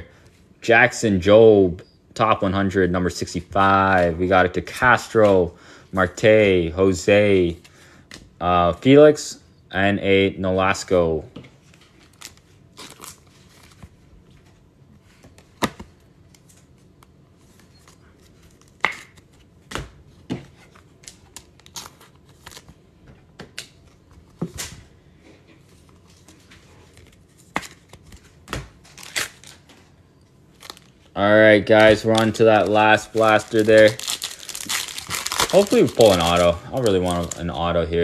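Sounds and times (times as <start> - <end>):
plastic wrapper rustling: 25.8 - 29.9, 30.5 - 37.8.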